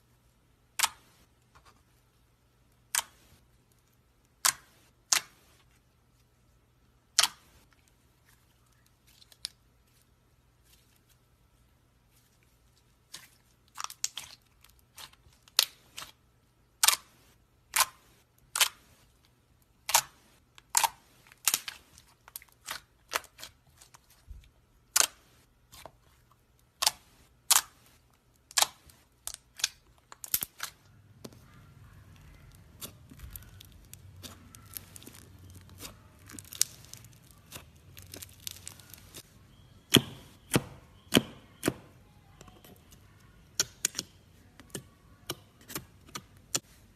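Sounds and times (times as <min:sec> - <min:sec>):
slime squishing: 0:07.1 - 0:46.9
slime popping: 0:31.5 - 0:39.2.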